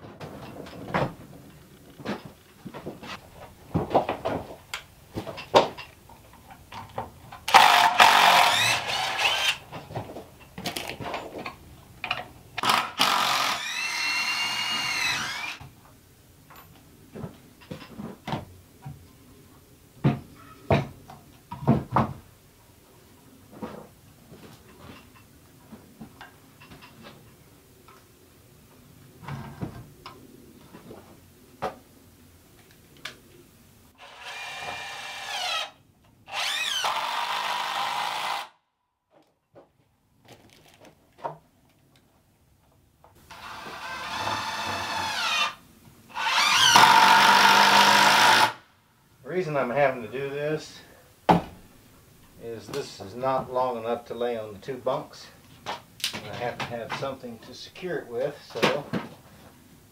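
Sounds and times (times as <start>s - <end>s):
cordless drill driving screws: 7.5s - 9.6s, 12.6s - 15.6s, 34.0s - 38.6s, 43.3s - 48.6s.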